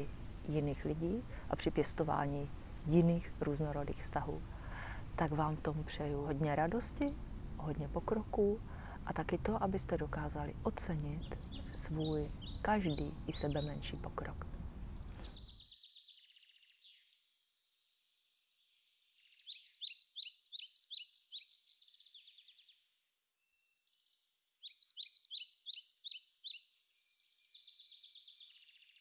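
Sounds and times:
songbird chirping: 0.0s - 29.0s
faint bird twittering: 11.2s - 17.1s, 23.4s - 29.0s.

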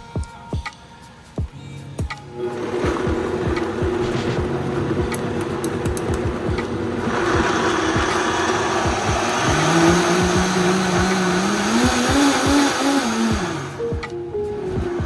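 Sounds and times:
instrumental background music: 0.0s - 15.0s.

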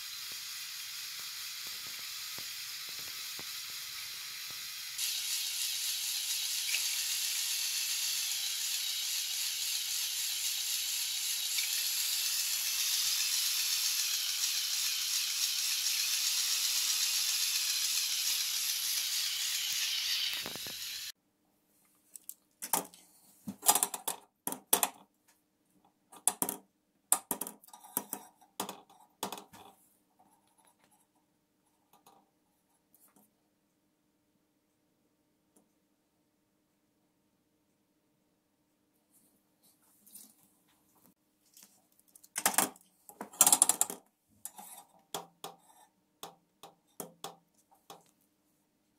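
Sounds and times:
toy motor gears whirring: 0.0s - 21.2s, 43.4s - 44.9s.

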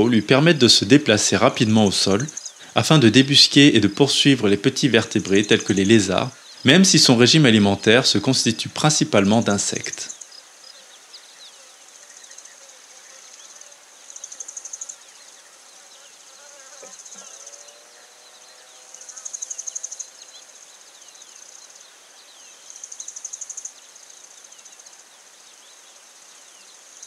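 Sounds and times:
insects trilling: 0.0s - 27.0s.

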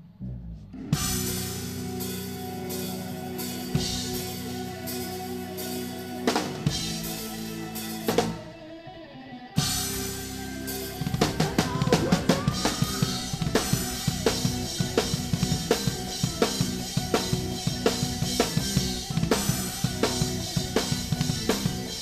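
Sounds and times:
live metal band playing: 0.8s - 8.8s, 9.6s - 22.0s
fast drumming with snare and bass drum: 9.6s - 22.0s.

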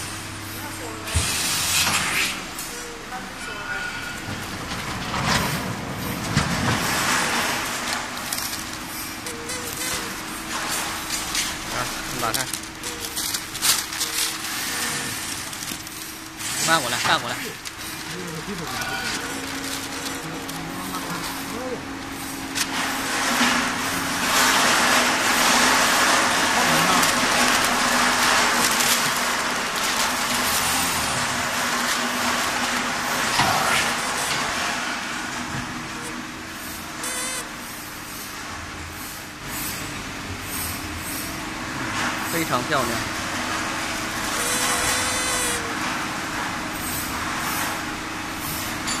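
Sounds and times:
heat press hum: 6.1s - 37.8s, 43.4s - 46.5s.

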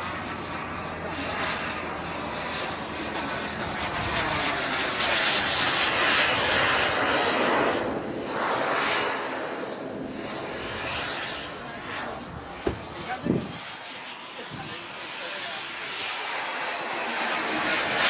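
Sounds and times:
model jet engine whine: 0.0s - 18.0s.

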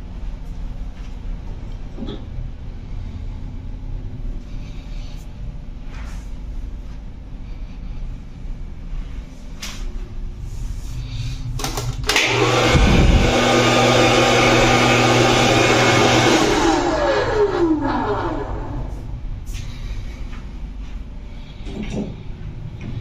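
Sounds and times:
hair dryer switch click: 11.6s - 12.7s
hair dryer blowing: 11.7s - 19.1s
motor spinning down whine: 12.1s - 19.2s.

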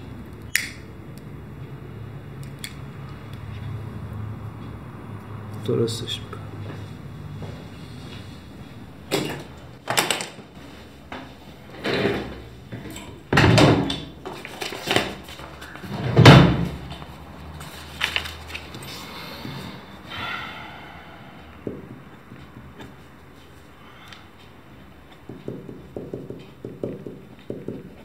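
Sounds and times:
desk drawer opening and shutting: 11.6s - 17.0s.

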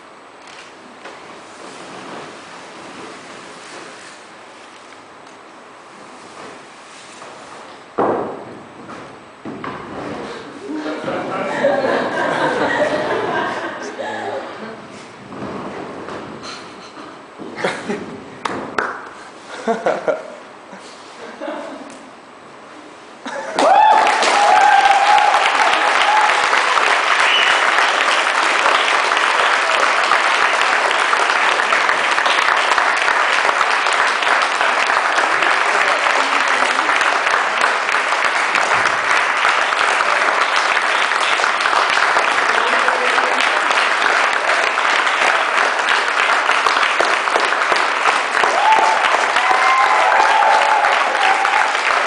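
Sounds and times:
audience applauding: 23.6s - 52.0s.

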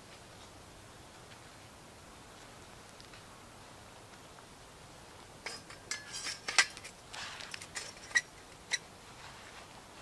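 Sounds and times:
short rustle: 5.5s - 10.0s.

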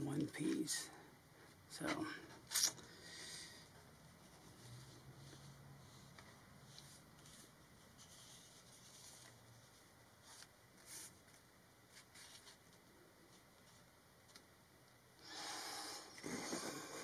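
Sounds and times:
soft paper swishes: 4.1s - 13.9s
paper cover rustling: 4.2s - 13.9s.

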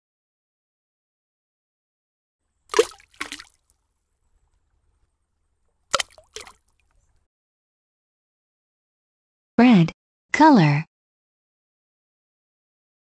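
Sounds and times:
cartoon splashes: 2.7s - 3.6s, 5.9s - 6.7s.

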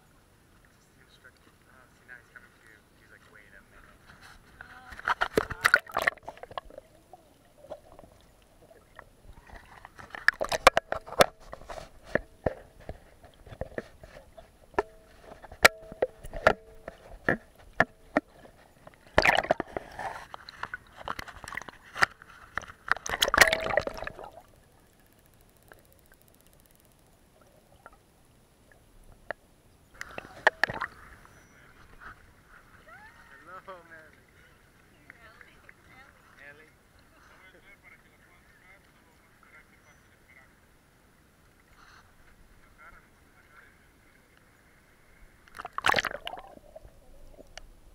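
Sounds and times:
water splashing: 0.7s - 26.2s, 30.0s - 37.0s, 42.4s - 47.9s
water sloshing and gurgling: 3.0s - 26.2s, 27.3s - 32.9s, 40.9s - 47.9s.

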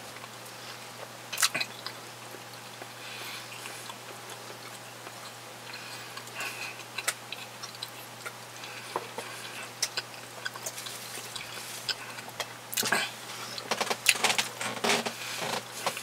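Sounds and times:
low steady hum: 0.0s - 16.0s
chewing with wet smacks: 0.1s - 14.2s.

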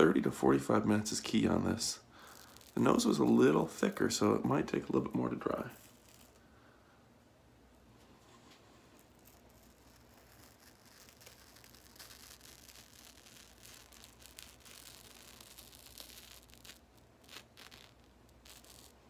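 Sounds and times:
peel-off mask crackling and tearing: 1.1s - 4.1s, 4.8s - 6.5s, 8.8s - 19.0s.

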